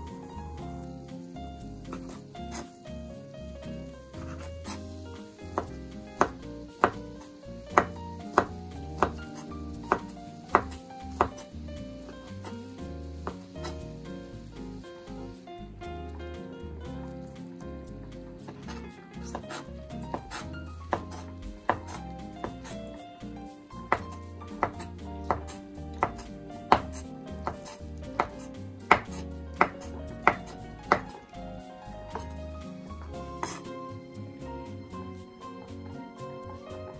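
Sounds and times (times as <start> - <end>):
soft background music: 0.0 - 36.9
knife cutting on wooden board: 7.7 - 11.6, 18.4 - 22.9, 23.9 - 31.2, 32.1 - 32.4, 33.1 - 33.7.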